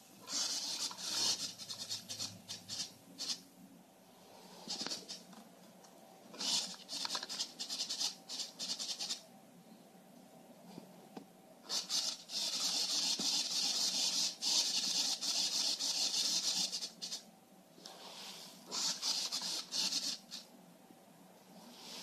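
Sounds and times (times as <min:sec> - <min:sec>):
ball scraping along wire track: 0:00.0 - 0:03.5, 0:04.6 - 0:05.4, 0:06.3 - 0:09.2, 0:11.7 - 0:20.5.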